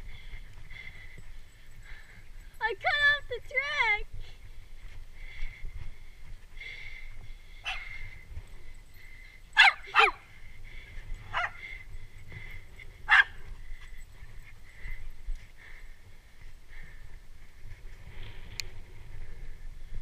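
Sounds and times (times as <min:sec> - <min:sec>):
small dog barking: 0:07.6 - 0:07.9, 0:09.6 - 0:10.2, 0:11.3 - 0:11.6, 0:13.1 - 0:13.4.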